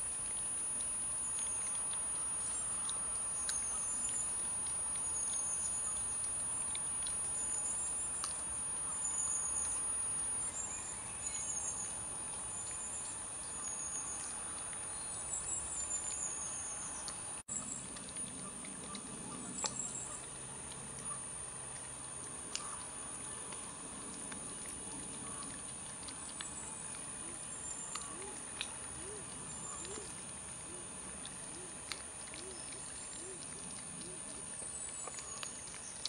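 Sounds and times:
steady hiss: 0:00.0 - 0:14.4
small bird chirping: 0:00.0 - 0:17.8
badgers rooting in loose soil: 0:00.0 - 0:36.0
constant high whine: 0:00.0 - 0:36.0.

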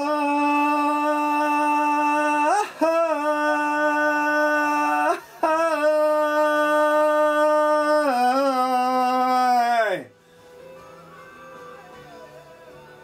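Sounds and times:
man singing long wordless notes: 0:00.0 - 0:10.1.

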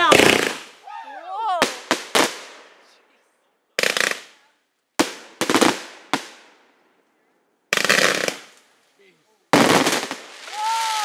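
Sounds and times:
fireworks bangs: 0:00.0 - 0:00.8, 0:01.4 - 0:02.8, 0:03.8 - 0:06.6, 0:07.7 - 0:08.6, 0:09.5 - 0:11.0
fireworks crackling: 0:00.0 - 0:03.0, 0:03.7 - 0:06.6, 0:07.7 - 0:11.0.

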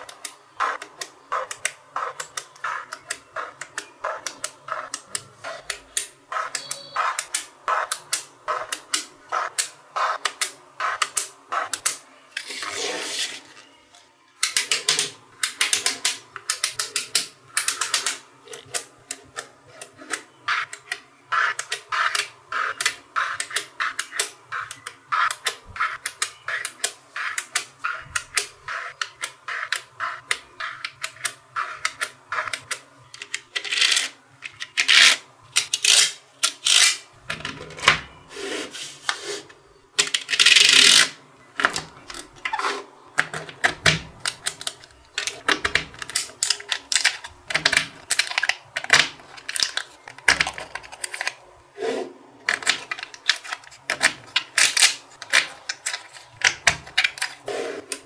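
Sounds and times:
magnetic balls clicking: 0:14.4 - 0:37.5, 0:40.0 - 0:51.4.

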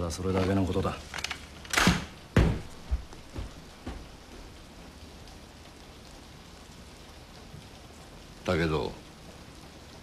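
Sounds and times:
steady rain: 0:00.0 - 0:10.0
thump and knocks: 0:01.8 - 0:04.0.

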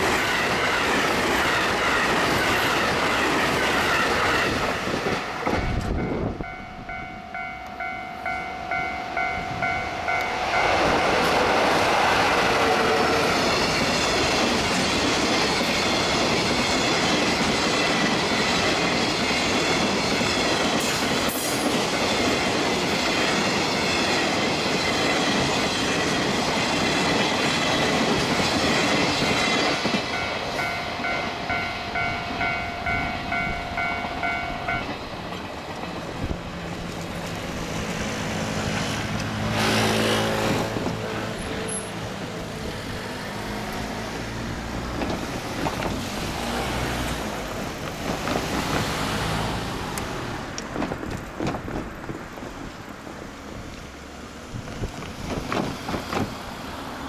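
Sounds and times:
train wheels clattering over rail joints: 0:00.0 - 0:06.4, 0:10.6 - 0:56.8
train rushing past: 0:00.0 - 0:57.0
level-crossing warning bell: 0:03.7 - 0:20.8, 0:21.9 - 0:36.2.

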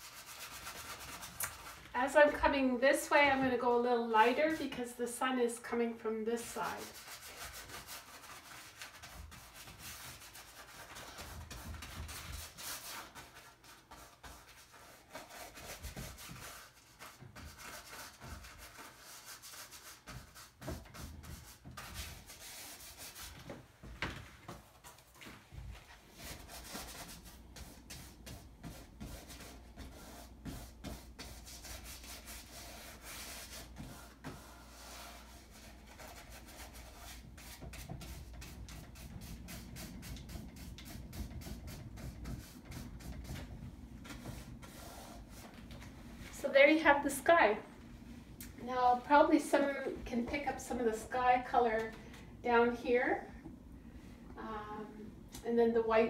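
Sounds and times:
paintbrush rubbing on canvas: 0:06.4 - 0:23.6, 0:24.7 - 0:46.5.

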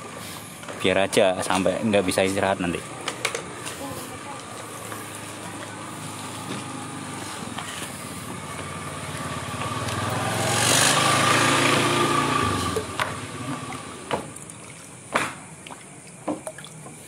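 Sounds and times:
vehicle engine passing: 0:02.2 - 0:14.4.

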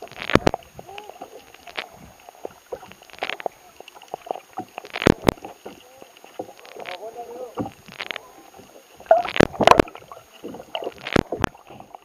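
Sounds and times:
underwater sloshing and bubbling: 0:00.0 - 0:12.0
sharp knocks and clicks: 0:07.6 - 0:11.6.

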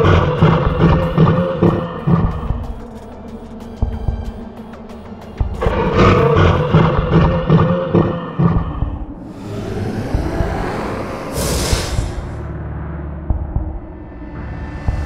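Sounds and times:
deep monster growl: 0:00.0 - 0:02.6, 0:05.6 - 0:12.6
eerie background music: 0:00.0 - 0:15.0.

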